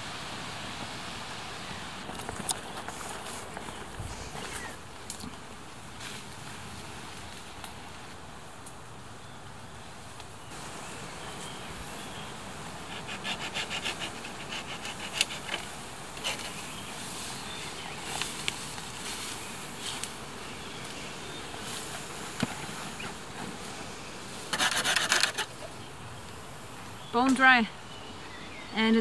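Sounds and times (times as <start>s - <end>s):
dry branches rustling and cracking: 2.0s - 9.1s, 13.6s - 27.5s
hand saw rasping through branch: 12.8s - 16.6s, 24.5s - 25.5s.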